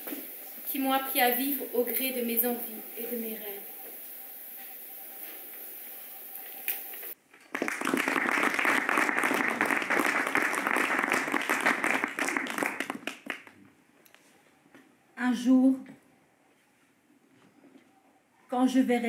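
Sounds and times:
audience applause: 0:07.5 - 0:13.6.

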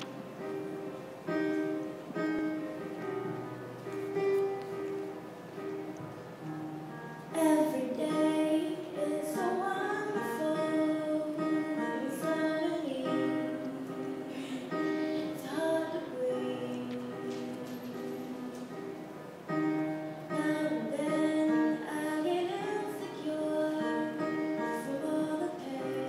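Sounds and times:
instrumental accompaniment: 0:00.0 - 0:26.0
girl singing with vibrato: 0:07.3 - 0:19.1, 0:20.3 - 0:26.0.

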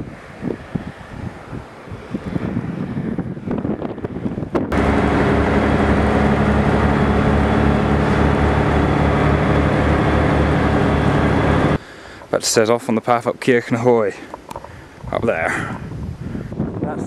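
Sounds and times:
wind on microphone: 0:00.0 - 0:11.9, 0:14.5 - 0:17.0
bus engine running: 0:04.7 - 0:11.8.

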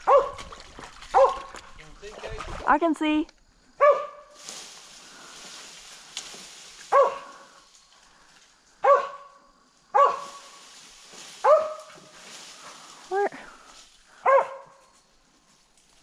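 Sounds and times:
dog barking: 0:00.0 - 0:00.4, 0:01.1 - 0:01.5, 0:03.8 - 0:04.3, 0:06.9 - 0:07.4, 0:08.8 - 0:10.4, 0:11.4 - 0:12.0, 0:14.2 - 0:14.8.

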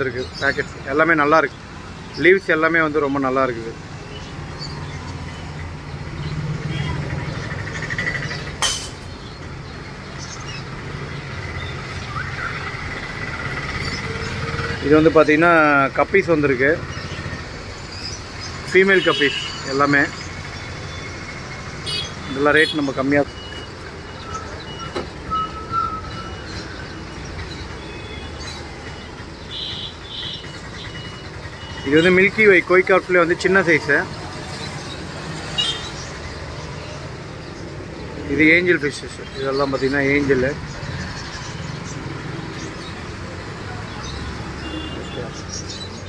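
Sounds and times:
road traffic rumble: 0:00.0 - 0:46.0
bird chirps and whistles: 0:24.2 - 0:26.5.

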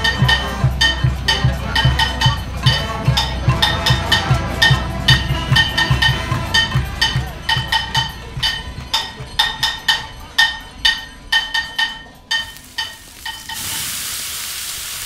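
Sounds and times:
bell-like percussion music: 0:00.0 - 0:13.6
steady sizzling hiss: 0:12.3 - 0:15.0.

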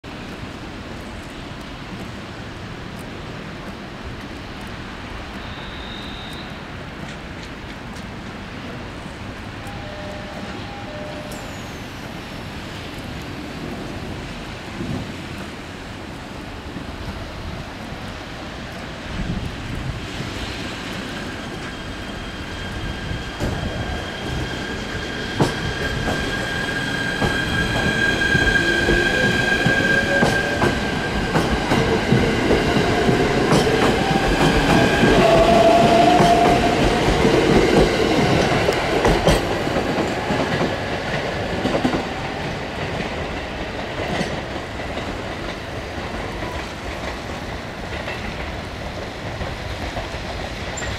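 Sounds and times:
train wheels clicking over rail joints: 0:13.0 - 0:50.9.

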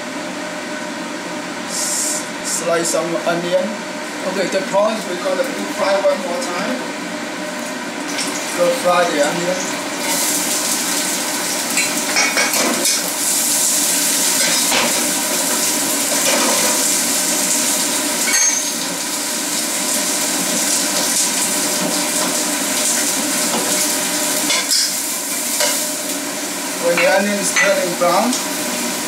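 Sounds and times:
onion sizzling in oil: 0:07.2 - 0:29.0.

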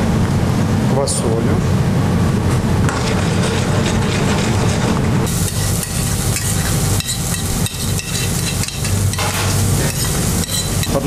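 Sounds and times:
low mechanical drone: 0:00.0 - 0:11.0
steel pans clinking: 0:05.5 - 0:11.0.

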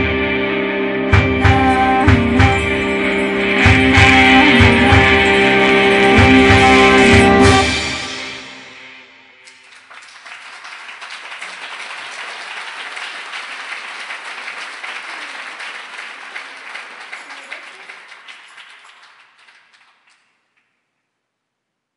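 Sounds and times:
live song last notes: 0:00.0 - 0:09.0
audience applauding: 0:09.4 - 0:20.7.

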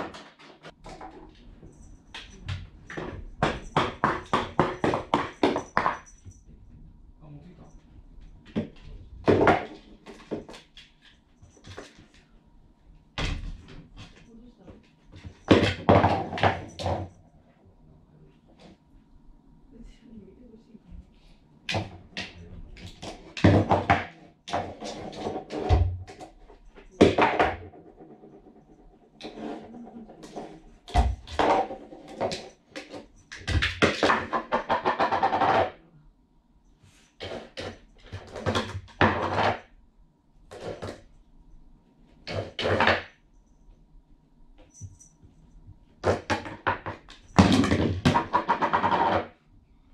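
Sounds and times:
bowl scraping on wooden floor: 0:27.0 - 0:33.2.

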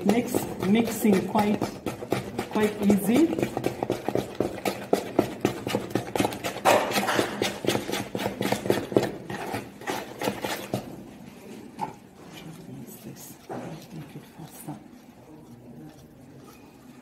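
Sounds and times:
wooden spoon knocking plastic bowl: 0:00.0 - 0:11.0.

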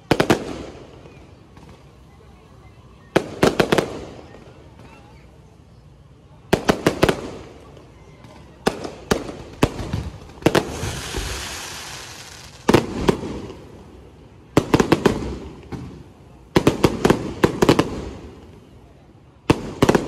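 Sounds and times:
fireworks bangs: 0:00.0 - 0:02.0, 0:03.1 - 0:04.9, 0:06.5 - 0:18.5, 0:19.4 - 0:20.0
fireworks fizzing hiss: 0:08.6 - 0:18.7.

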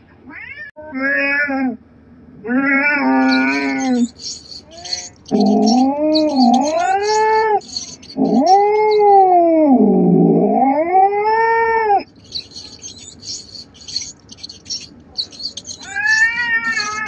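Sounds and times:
cat yowling: 0:02.5 - 0:09.7, 0:10.7 - 0:17.0
faint high-pitched ticking: 0:03.2 - 0:09.4, 0:12.1 - 0:17.0.

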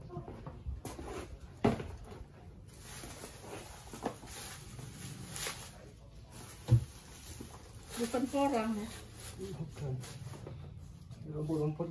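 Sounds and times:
plastic tub set down on concrete: 0:01.6 - 0:02.2
weeds rustling: 0:02.7 - 0:10.4.

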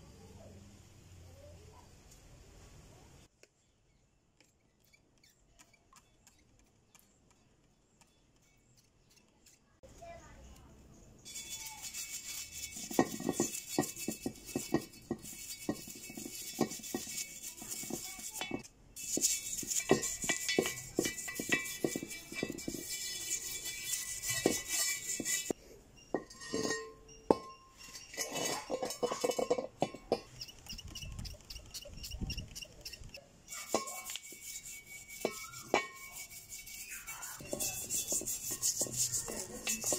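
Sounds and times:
brush bristles rasping on wheel: 0:04.4 - 0:09.8, 0:11.3 - 0:25.6, 0:27.8 - 0:39.9
brush clinking against metal rim: 0:11.2 - 0:39.9.

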